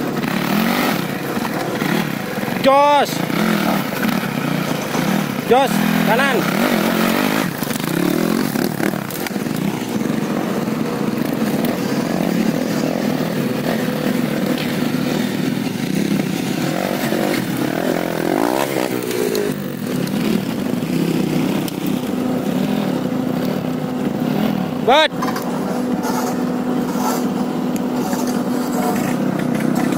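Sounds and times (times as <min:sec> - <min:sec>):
motorcycle engines revving: 0:00.0 - 0:29.9.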